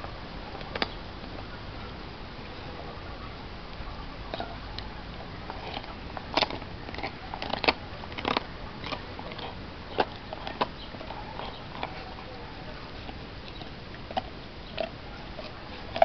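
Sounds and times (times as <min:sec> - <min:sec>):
dog gnawing a bone: 0:04.3 - 0:16.0.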